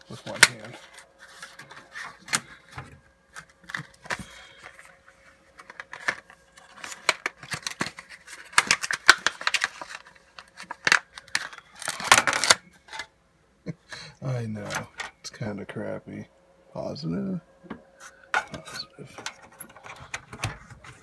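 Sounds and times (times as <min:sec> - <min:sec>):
plastic packaging crinkling and snapping: 0:00.0 - 0:13.1, 0:18.3 - 0:21.0.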